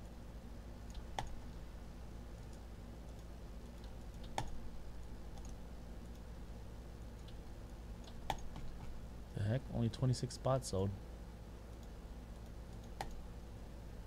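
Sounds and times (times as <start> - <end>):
steady low hum: 0.0 - 14.0
keyboard and mouse clicking: 0.9 - 1.4, 2.5 - 4.6, 5.3 - 6.3, 8.0 - 9.0, 11.7 - 13.2.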